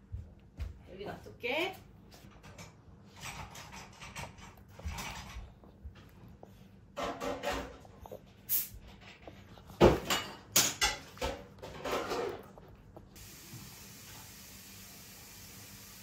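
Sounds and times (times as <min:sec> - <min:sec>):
sharp knocks and clatters: 0:02.2 - 0:06.3, 0:07.0 - 0:08.0, 0:08.9 - 0:12.7.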